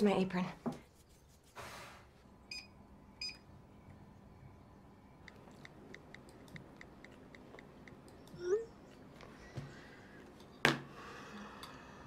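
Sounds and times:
oven keypad beeps: 2.5 - 3.4.

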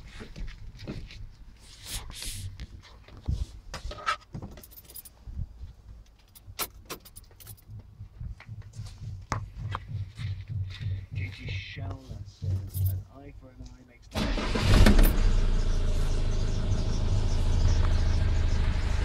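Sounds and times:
handling knocks and rustles: 0.0 - 13.8
keys jangling and clicking: 4.5 - 5.2, 6.2 - 7.7, 12.6 - 13.0.

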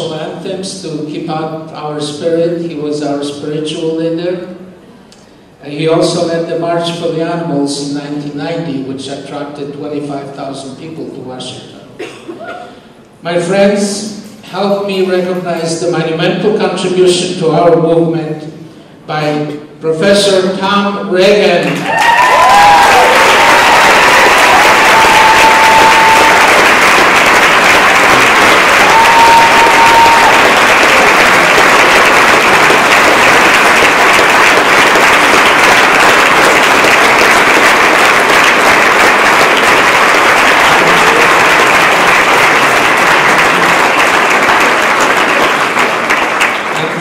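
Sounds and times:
large audience applauding: 21.6 - 47.0.

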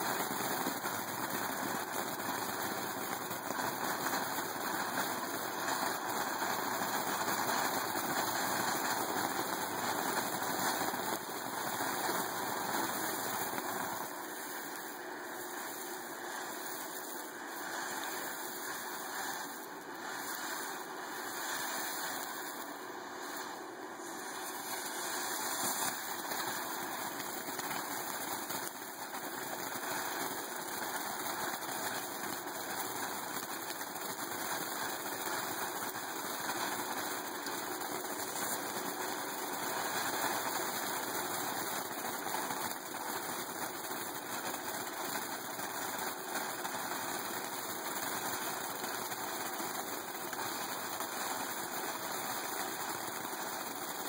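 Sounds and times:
firework fountain hissing: 0.0 - 54.0.

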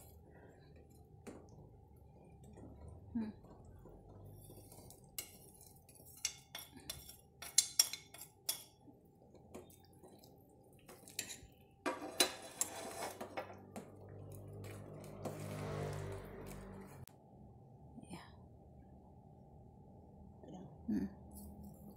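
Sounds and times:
spoon stirring liquid: 0.7 - 16.7
metal spoon clinking on pot: 5.1 - 8.8, 10.9 - 12.8.

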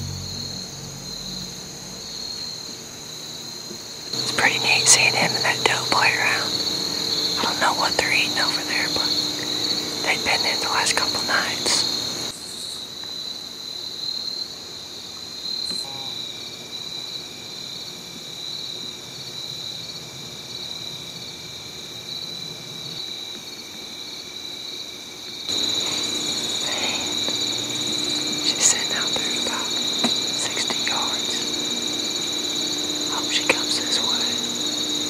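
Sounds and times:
insect chorus chirring: 0.0 - 35.0.

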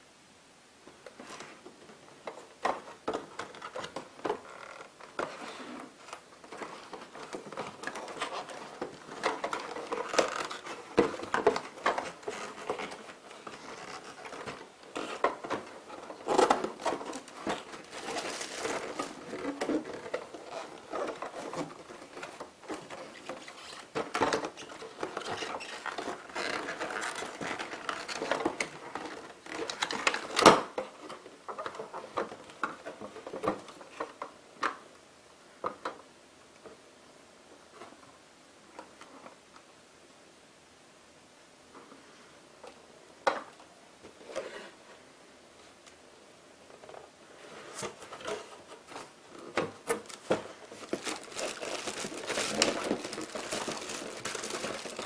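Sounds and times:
cardboard rustling and scraping: 1.1 - 34.4, 44.0 - 45.0, 46.6 - 55.0.

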